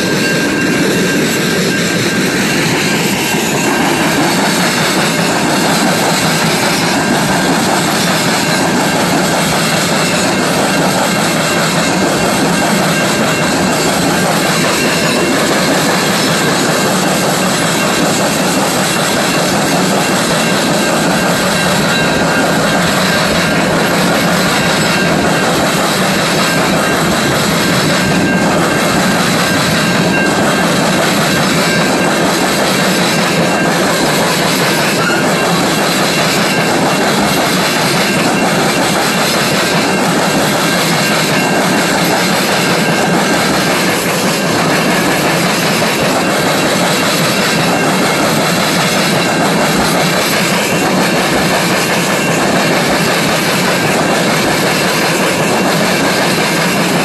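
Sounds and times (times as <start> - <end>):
steel wheels on rail: 0.0 - 57.0
wheels clacking over rail joints: 0.0 - 57.0.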